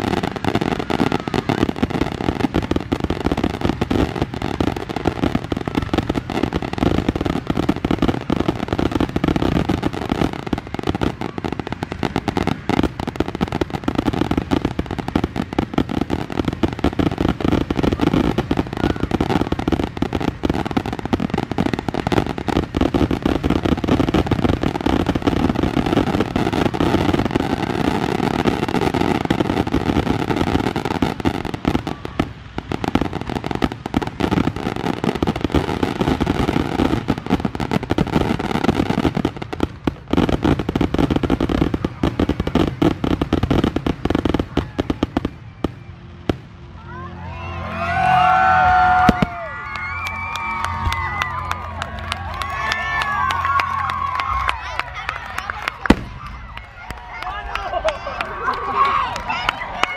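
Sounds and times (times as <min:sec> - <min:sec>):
fireworks barrage bangs and crackle: 0:00.0 - 0:46.7, 0:47.6 - 0:58.2.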